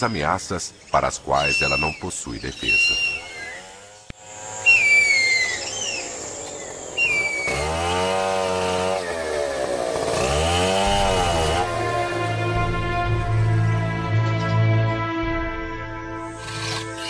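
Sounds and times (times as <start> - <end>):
whistled bird calls: 0.8 - 3.7, 4.6 - 7.6
chainsaw revving: 3.0 - 12.8, 16.3 - 17.0.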